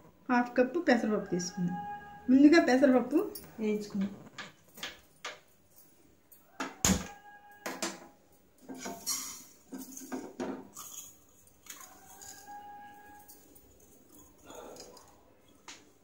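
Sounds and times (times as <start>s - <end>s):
kitchen utensils clinking: 8.5s - 15.6s.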